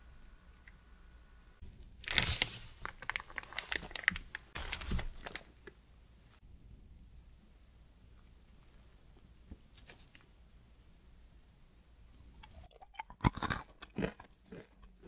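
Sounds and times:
plastic piping bag crinkling: 2.0 - 5.8.

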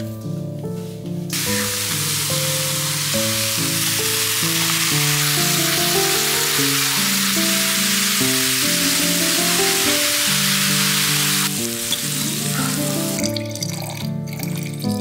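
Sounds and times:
background music with melody: 0.0 - 15.0
food sizzling in a frying pan: 1.3 - 13.3.

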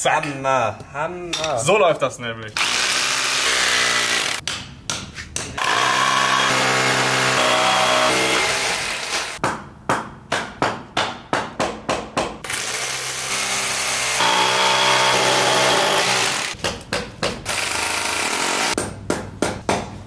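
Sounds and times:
rotary hammer drilling: 2.6 - 4.4, 5.6 - 9.4, 12.5 - 16.6, 17.5 - 18.8.

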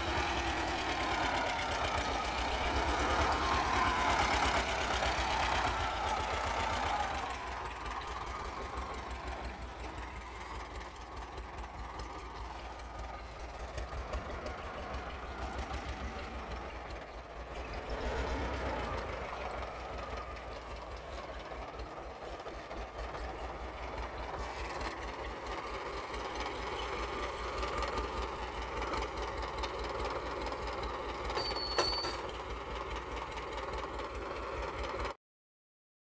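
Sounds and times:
tractor diesel engine running: 0.0 - 35.2
brief high squeal: 31.4 - 32.3.

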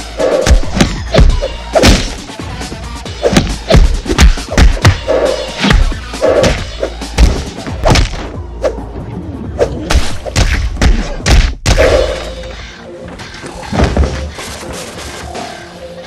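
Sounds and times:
background music: 0.0 - 16.0
punch thuds: 0.5 - 2.2, 3.3 - 5.0, 5.6 - 8.2.

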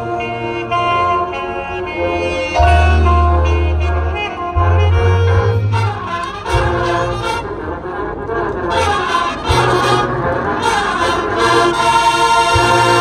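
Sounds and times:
deep bass notes: 0.0 - 11.7
brass playing held chords: 0.0 - 13.0.

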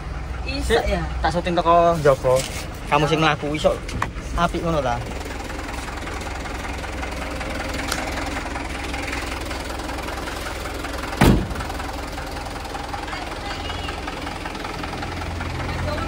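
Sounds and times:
diesel truck engine idling: 0.0 - 16.0
cab door slamming: 11.2 - 11.8.

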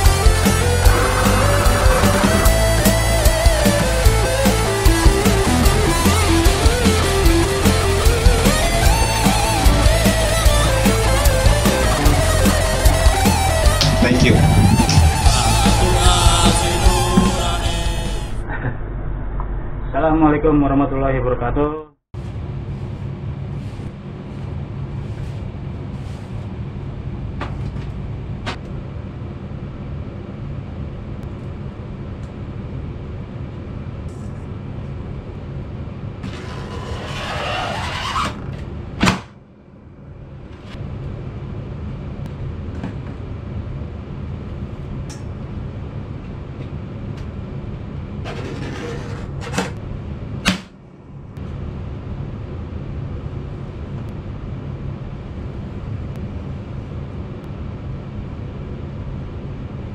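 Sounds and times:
low rumble: 0.0 - 5.9, 8.2 - 21.5
blade scraping plastic sheet: 36.2 - 38.6.

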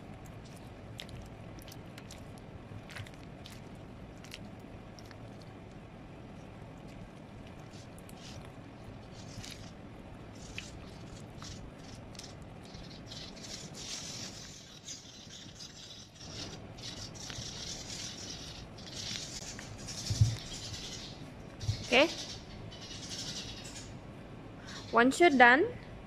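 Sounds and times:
wet cloth squelching and crinkling: 0.0 - 12.2.

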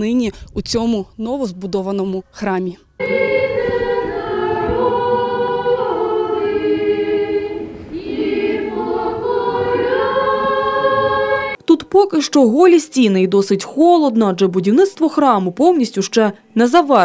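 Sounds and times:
choir chanting unaccompanied: 3.0 - 11.6.

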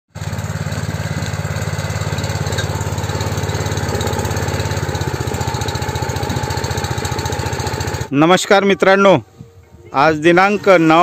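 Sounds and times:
small petrol engine puttering: 0.1 - 8.1.

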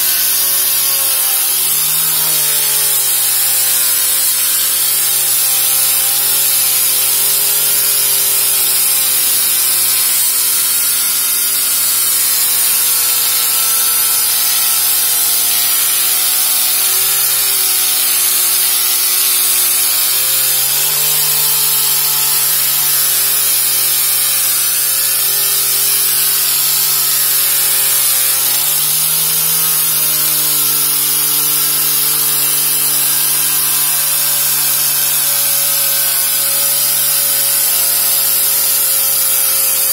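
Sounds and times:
angle grinder motor whine: 0.0 - 39.9.

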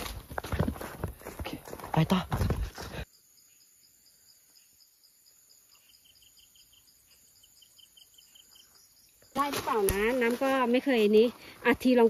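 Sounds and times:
high insect chirp: 1.2 - 12.0
lower quicker insect chirping: 3.0 - 11.9.

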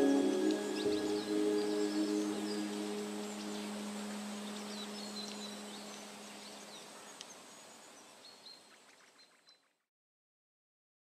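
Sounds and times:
held low music tone: 0.0 - 6.7
steady hiss: 0.0 - 8.6.

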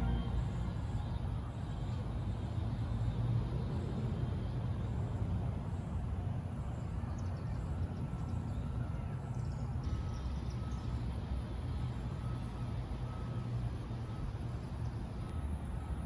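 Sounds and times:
faint thin steady tone: 0.0 - 3.3
steady low rumble: 0.0 - 16.0.

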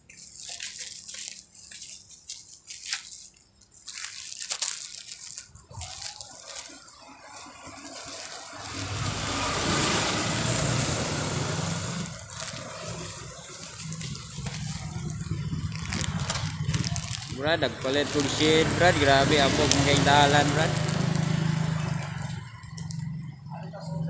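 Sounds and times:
road vehicle passing: 6.0 - 24.0
clicks and rustling: 11.9 - 23.1.

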